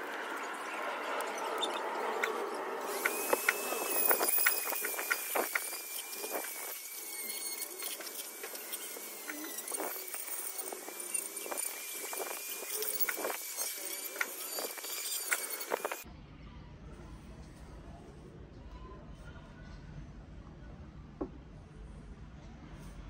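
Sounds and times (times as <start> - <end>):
rotary tool motor whine: 0.0 - 16.0
bit scraping and clicking on wood: 1.7 - 16.0.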